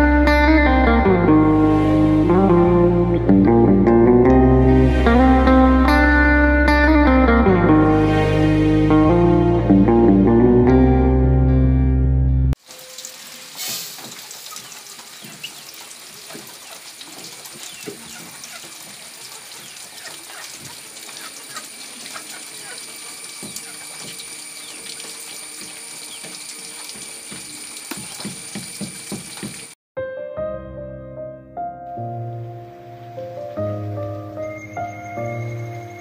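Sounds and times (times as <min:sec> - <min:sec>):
chickens scratching and clicking: 0:14.4 - 0:22.8
chicken chirps: 0:19.6 - 0:24.8.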